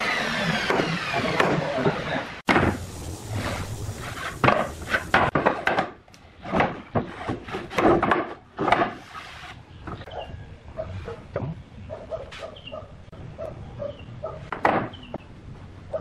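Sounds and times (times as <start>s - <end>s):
boards scraping and sliding: 0.0s - 10.2s
wooden boards knocking: 4.4s - 9.0s, 14.5s - 15.0s.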